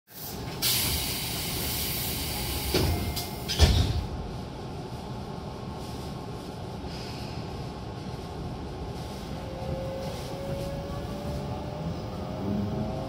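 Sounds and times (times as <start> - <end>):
air hiss of train doors: 0.1 - 4.3, 6.8 - 7.7
train doors thudding shut: 2.3 - 4.3.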